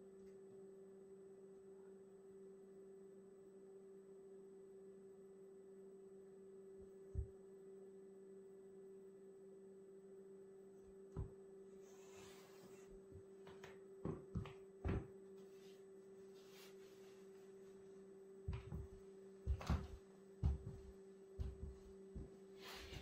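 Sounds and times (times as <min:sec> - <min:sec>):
faint steady hum: 0:00.0 - 0:23.0
boot footsteps on wood floor: 0:18.5 - 0:23.0.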